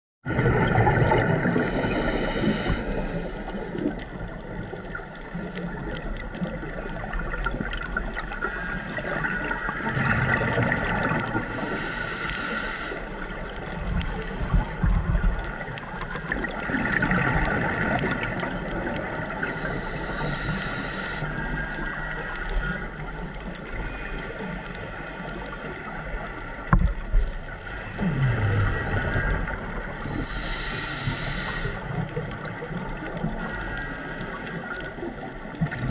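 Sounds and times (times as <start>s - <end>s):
underwater water noise: 0.2s - 35.9s
bubbling exhales: 0.3s - 21.5s, 27.6s - 35.9s
regulator hissing inhale: 1.6s - 3.9s, 11.4s - 13.6s, 19.4s - 22.8s, 30.0s - 32.0s, 33.4s - 34.8s.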